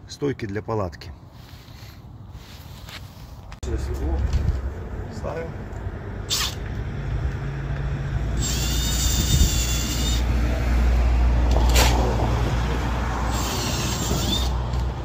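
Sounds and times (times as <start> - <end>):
cordless drill whining: 8.4 - 10.3, 13.3 - 14.7
car passing rumble: 10.1 - 15.0.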